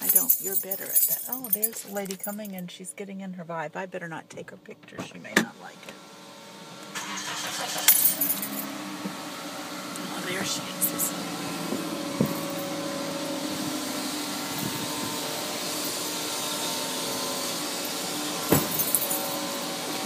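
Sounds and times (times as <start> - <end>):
car engine idling: 6.0 - 20.0.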